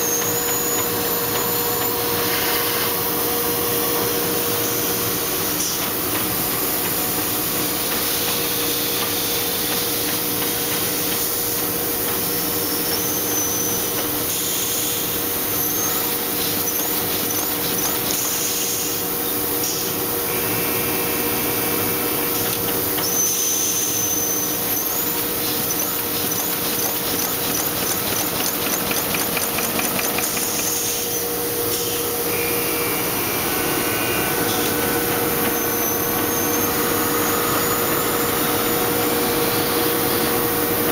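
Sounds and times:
short high-pitched machine whines: 0.0s - 5.9s, 12.6s - 40.9s
machine clatter and hum: 0.0s - 40.9s
fast mechanical ticking: 25.7s - 30.9s.

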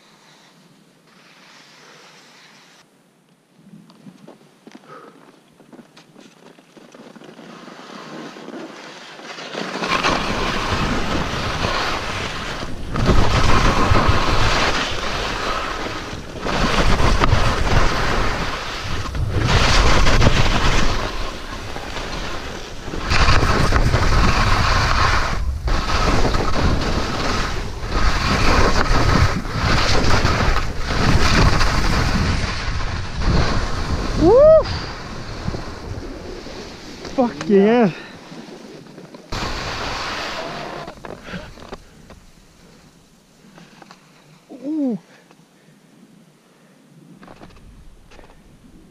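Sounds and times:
skis scraping on snow: 0.0s - 2.9s, 5.7s - 44.7s
wind on microphone: 9.9s - 37.9s
person whooping: 34.1s - 34.9s, 40.2s - 41.0s, 44.5s - 45.1s.

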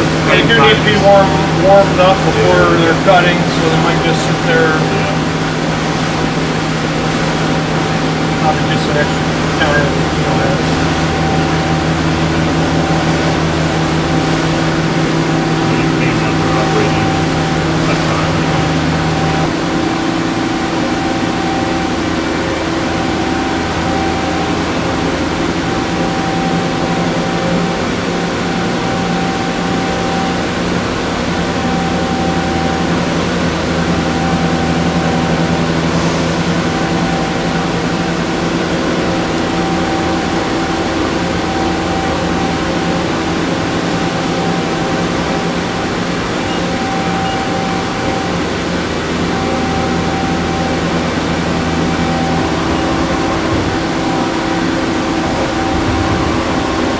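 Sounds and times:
high machine whine: 0.0s - 56.9s
machine mechanical hum: 0.0s - 56.9s
constant hiss: 7.4s - 19.5s.

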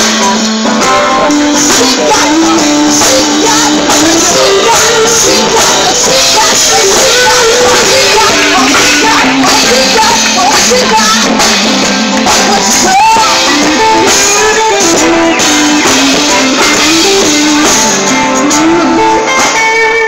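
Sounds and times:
guitar accompaniment: 0.0s - 20.0s
person singing: 0.0s - 20.0s.

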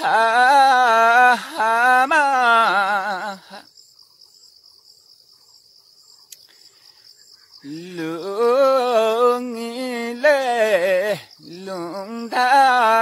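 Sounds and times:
man singing unaccompanied folk song: 0.0s - 3.8s, 7.6s - 13.0s.

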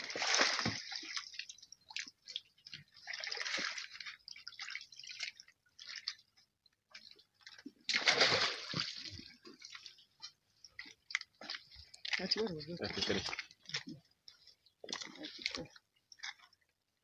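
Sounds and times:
water splashing in a pond: 0.0s - 16.7s
water dripping and trickling: 0.0s - 16.8s.

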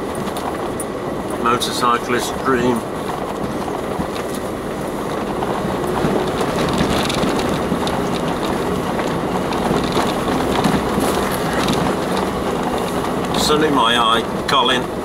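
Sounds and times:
engine and tyre noise: 0.0s - 15.0s
tyres crunching over stones: 5.2s - 13.6s.

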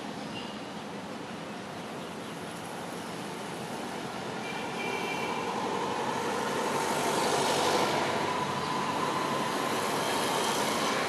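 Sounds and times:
passing vehicle rushing: 4.8s - 11.0s.

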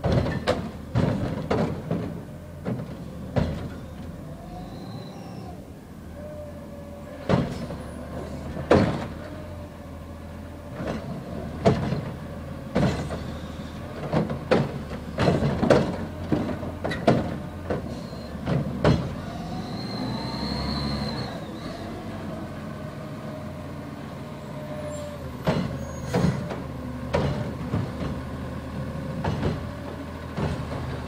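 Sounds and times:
clanks and bangs of trash carts: 0.0s - 3.9s, 7.2s - 7.8s, 10.7s - 19.6s, 24.6s - 28.5s, 29.1s - 31.0s
truck whine: 0.0s - 31.0s.

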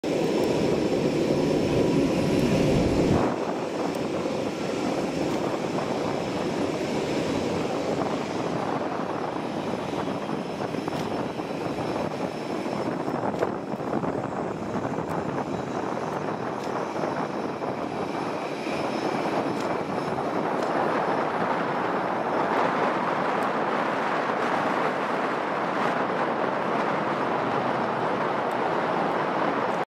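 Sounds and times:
turboprop aircraft droning: 0.0s - 29.9s.

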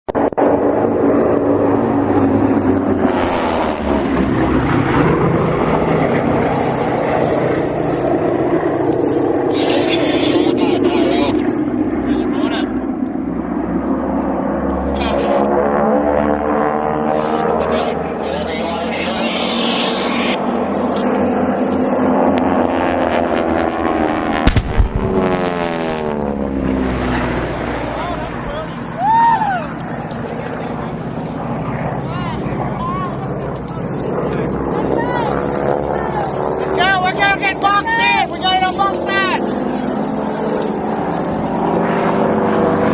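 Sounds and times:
airplane engine flying past: 0.1s - 42.9s
low rumble: 0.1s - 42.9s
propeller aircraft passing overhead: 0.1s - 42.9s
explosion boom: 24.4s - 25.7s.

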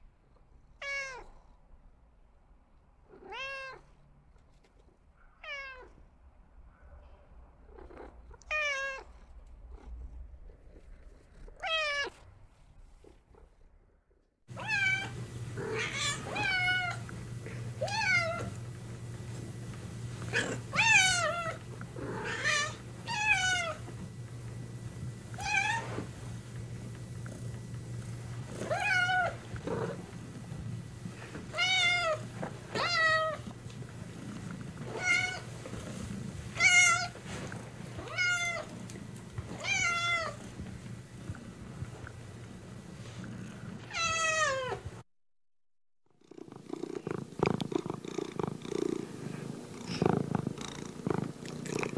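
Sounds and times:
cat meowing: 0.8s - 1.3s, 3.2s - 3.8s, 5.4s - 5.9s, 8.4s - 9.1s, 11.6s - 12.1s, 14.6s - 17.0s, 17.8s - 18.6s, 28.6s - 29.4s, 31.5s - 33.4s, 38.0s - 38.7s, 39.6s - 40.4s, 43.9s - 44.9s
steady low hum: 6.2s - 43.9s, 46.2s - 51.9s.

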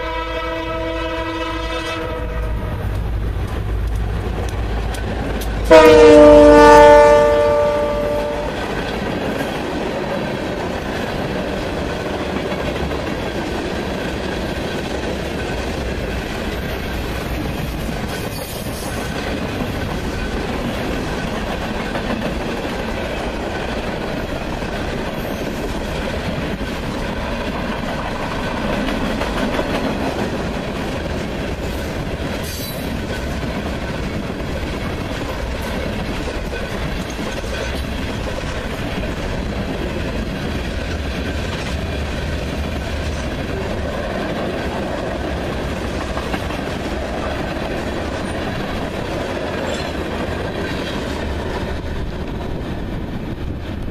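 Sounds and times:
locomotive horn chord: 0.0s - 2.8s, 5.7s - 8.6s
train wheels clacking on rails: 2.0s - 53.9s.

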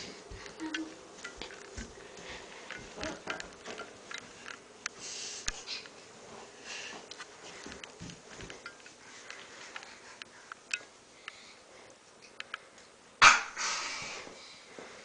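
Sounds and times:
breathy hisses: 13.6s - 14.7s.

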